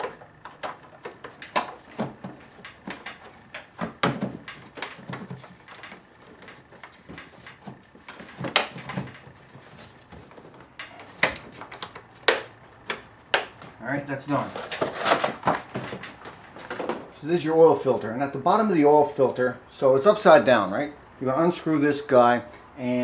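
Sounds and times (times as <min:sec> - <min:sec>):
plastic clicks and knocks: 0:00.0 - 0:13.7.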